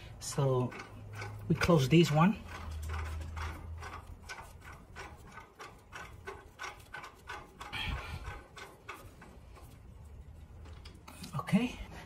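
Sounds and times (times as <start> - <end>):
valve handwheel ticking and creaking: 0.0 - 12.0.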